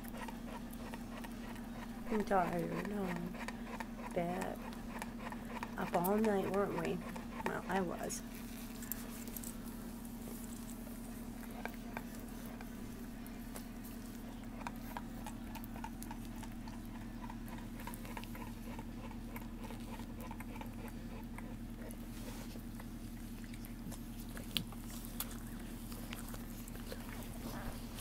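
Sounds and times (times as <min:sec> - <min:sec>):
puppies suckling wet clicks: 0:00.0 - 0:28.0.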